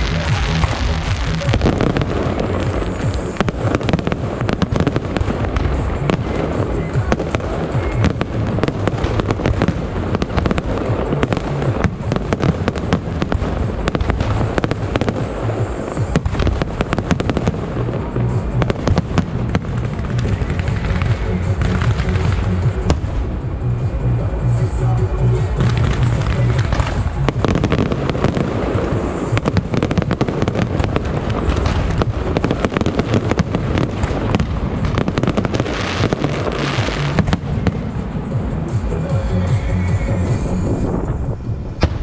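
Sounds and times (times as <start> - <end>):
fireworks banging and crackling: 0.0 - 42.0.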